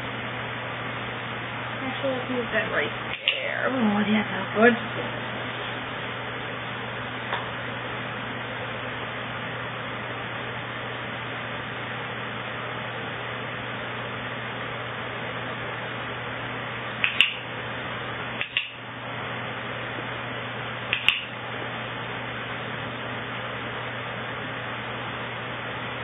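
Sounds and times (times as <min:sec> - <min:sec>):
electric fan humming: 0:00.0 - 0:26.0
clicker double clicks: 0:17.0 - 0:17.4, 0:20.9 - 0:21.3.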